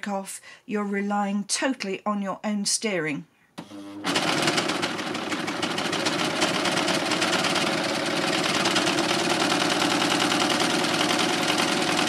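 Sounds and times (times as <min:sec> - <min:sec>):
overlocker sewing machine rattling: 0:03.8 - 0:12.0.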